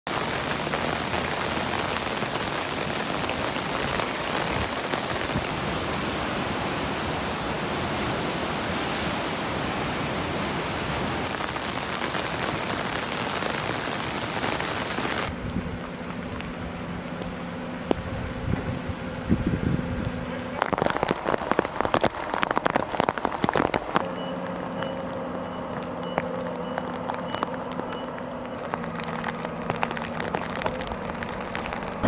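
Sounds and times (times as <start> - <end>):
heavy rain: 0.0 - 32.0
river rushing: 0.1 - 15.6.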